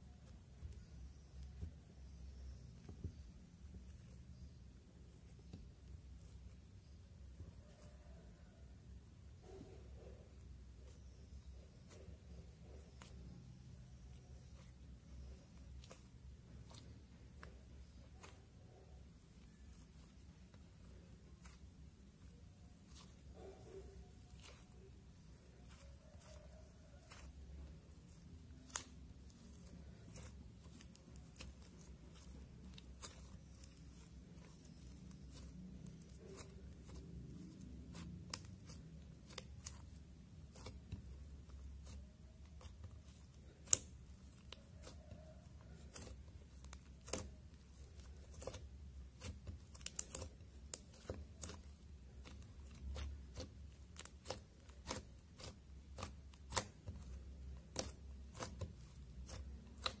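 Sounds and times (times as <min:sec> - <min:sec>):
slime snapping: 0:43.6 - 0:44.0.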